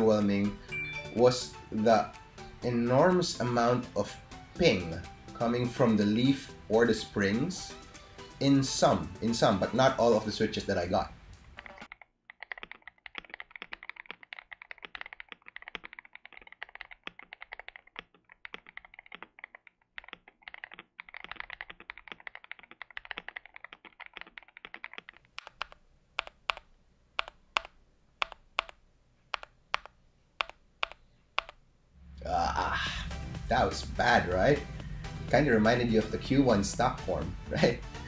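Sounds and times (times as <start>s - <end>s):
mechanical keyboard typing: 11.4s - 31.6s.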